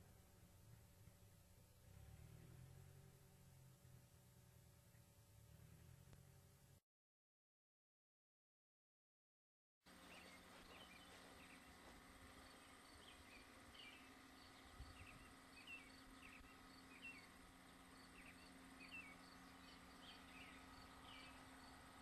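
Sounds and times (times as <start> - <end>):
faint steady hum: 0.0 - 6.8, 9.9 - 22.0
birds chirping: 9.9 - 22.0.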